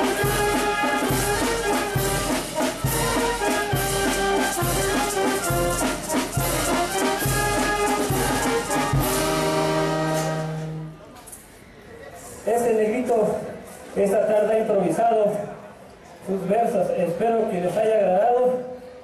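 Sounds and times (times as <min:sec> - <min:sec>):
brass band playing dance tune: 0:00.0 - 0:11.1.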